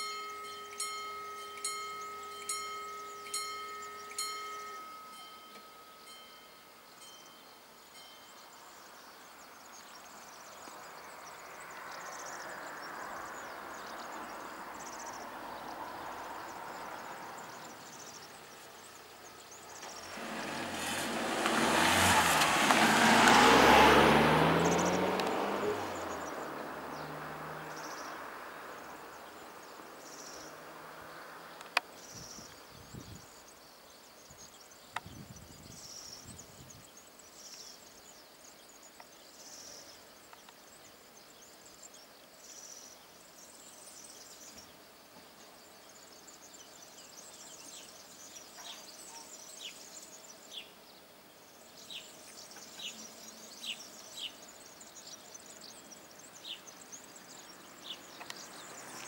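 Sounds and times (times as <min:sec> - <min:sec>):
high insect chirps: 0:00.0 - 0:59.0
van driving past: 0:11.3 - 0:31.6, 0:55.8 - 0:59.0.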